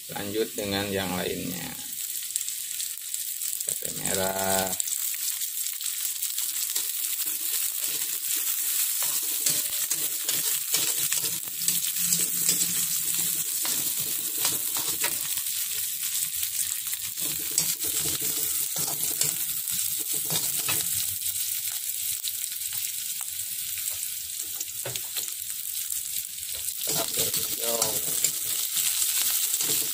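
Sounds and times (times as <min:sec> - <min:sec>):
food sizzling in hot oil: 0:00.0 - 0:29.9
metal spatula scraping a pan: 0:06.7 - 0:21.2, 0:26.8 - 0:29.9.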